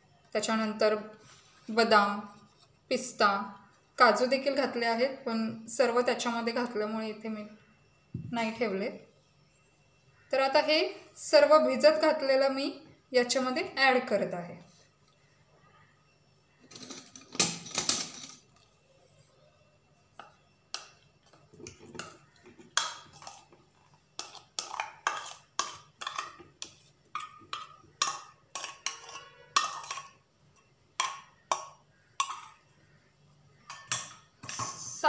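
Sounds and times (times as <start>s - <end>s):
spoon scraping metal bowl: 21.2s - 30.2s, 31.0s - 33.0s, 33.6s - 35.0s.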